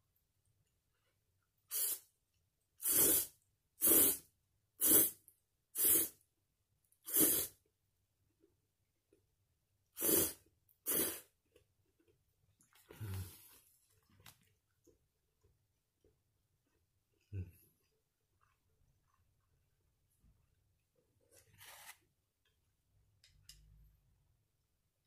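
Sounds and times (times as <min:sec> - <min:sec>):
man slurping noodles: 0:07.1 - 0:07.6, 0:10.0 - 0:11.3.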